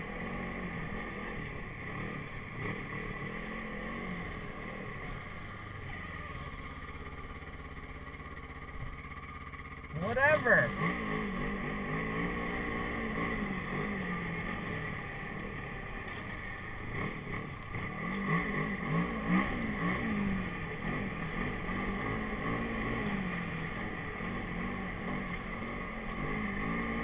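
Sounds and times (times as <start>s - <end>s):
snowmobile engine revving: 9.9s - 27.0s.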